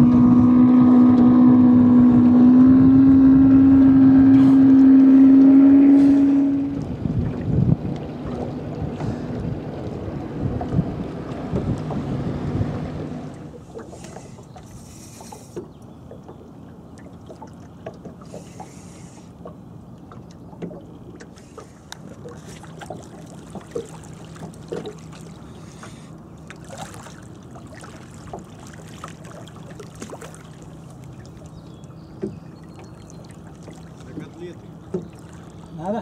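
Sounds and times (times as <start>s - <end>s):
water lapping: 0.0s - 36.0s
fish splashing: 20.2s - 31.6s.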